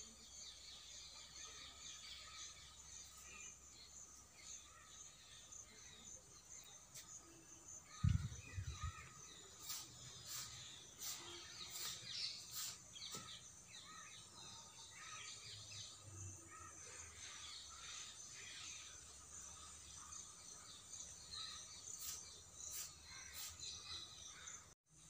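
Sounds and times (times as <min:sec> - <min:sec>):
birds chirping and calling: 0:00.0 - 0:24.8
insect buzz: 0:02.3 - 0:14.0.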